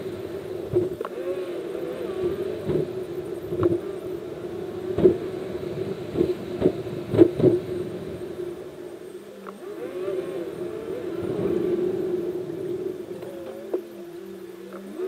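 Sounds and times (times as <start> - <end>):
car interior hum: 0.0 - 15.0.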